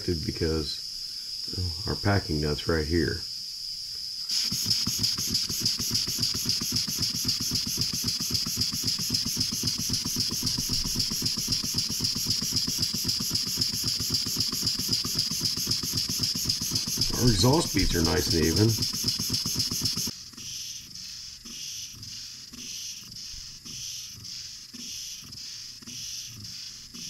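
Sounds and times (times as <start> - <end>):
steady hiss of air: 0.0 - 27.0
steam engine exhaust beats: 4.3 - 20.1.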